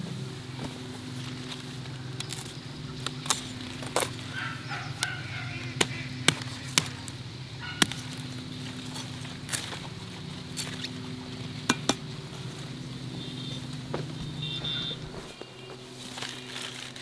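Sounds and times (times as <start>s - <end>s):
chickens clucking: 2.8s - 8.1s.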